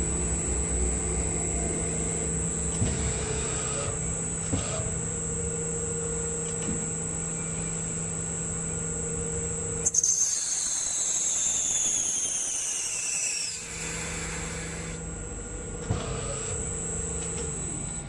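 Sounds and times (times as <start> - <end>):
lathe humming and whining: 0.0 - 18.0
hiss with falling whine: 10.2 - 15.0.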